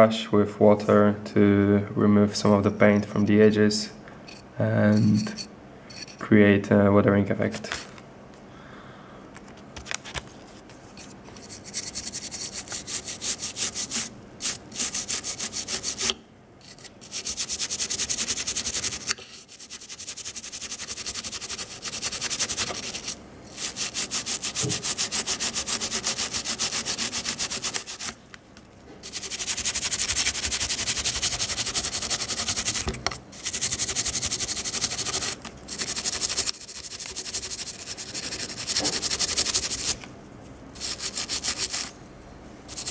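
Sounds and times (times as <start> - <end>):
toothbrush scrubbing plastic: 11.3 - 28.2, 29.0 - 40.1, 40.8 - 41.9, 42.7 - 42.9.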